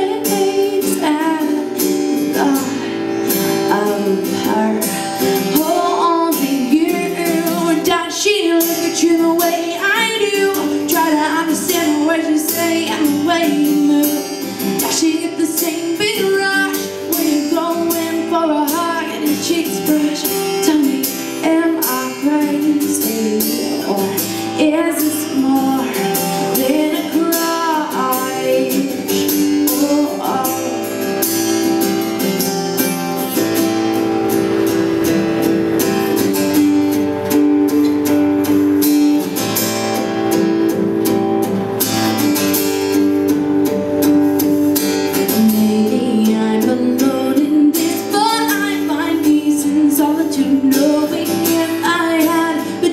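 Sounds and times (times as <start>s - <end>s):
woman singing: 0.0s - 31.9s, 45.1s - 52.9s
acoustic guitar strummed: 0.0s - 52.9s.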